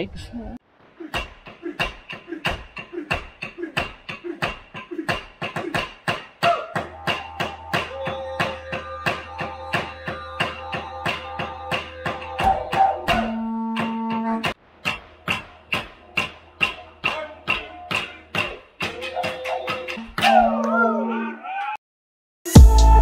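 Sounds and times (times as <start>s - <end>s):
didgeridoo drone: 6.9s - 14.6s.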